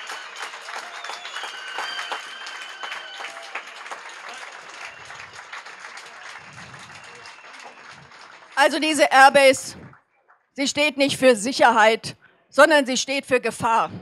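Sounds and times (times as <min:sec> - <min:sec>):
high whistle-like tones: 0:00.0 - 0:03.8
crowd applauding: 0:00.0 - 0:10.0.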